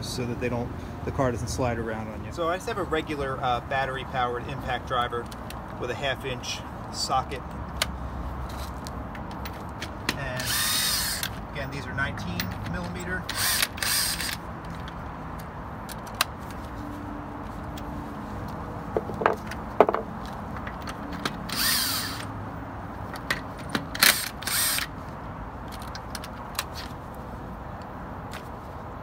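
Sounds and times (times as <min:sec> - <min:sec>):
impact driver spinning lug nuts: 0:09.4 - 0:15.0, 0:20.7 - 0:22.3, 0:23.7 - 0:25.0.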